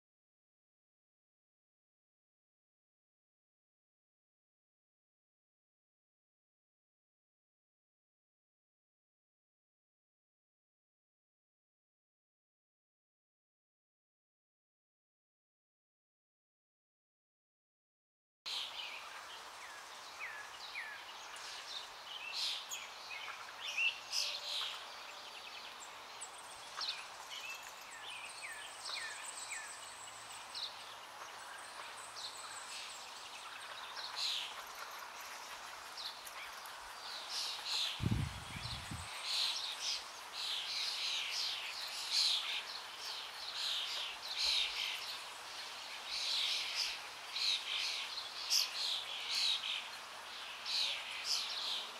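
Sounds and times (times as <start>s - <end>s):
small birds chirping: 18.5s - 51.9s
steady outdoor hiss: 18.5s - 51.9s.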